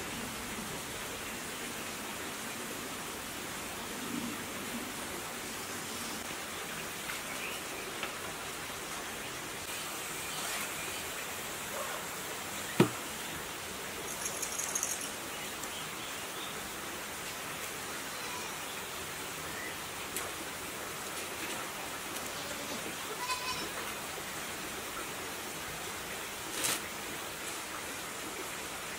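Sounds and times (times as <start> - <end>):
steady background hiss: 0.0 - 28.9
cloth tape crackling rustle: 26.5 - 26.9.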